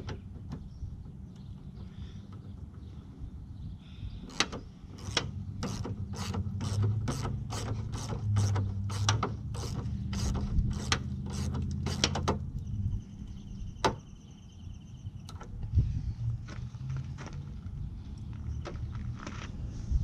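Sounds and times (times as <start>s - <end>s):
hand ratchet clicking: 4.3s - 12.4s.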